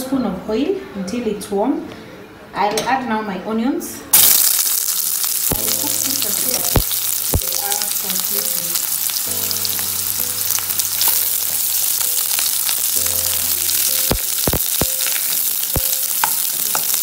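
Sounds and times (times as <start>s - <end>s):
onions sizzling in oil: 4.2s - 17.0s.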